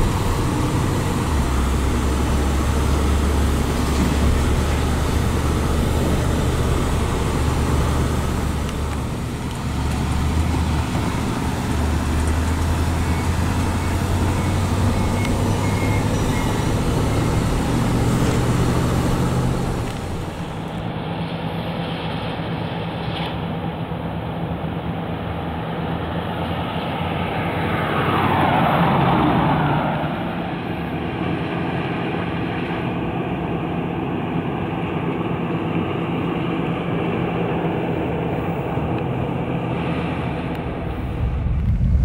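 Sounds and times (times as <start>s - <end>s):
road noise: 0.0s - 42.0s
car driving by: 27.0s - 31.7s, 39.4s - 42.0s.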